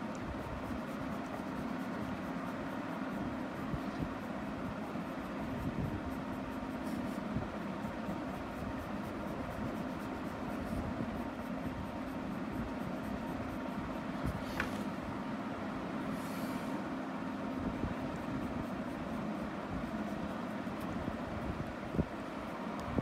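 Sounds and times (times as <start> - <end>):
steady low hum: 0.0 - 23.0
pen scratching on paper: 0.1 - 14.8.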